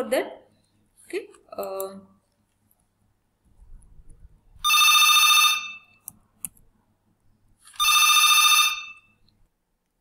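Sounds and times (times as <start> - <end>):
telephone ringing: 4.6 - 6.0, 7.8 - 9.2.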